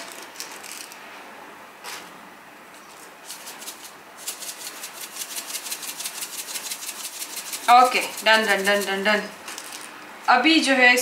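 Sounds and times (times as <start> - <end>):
salt rattling in shaker: 2.9 - 10.0.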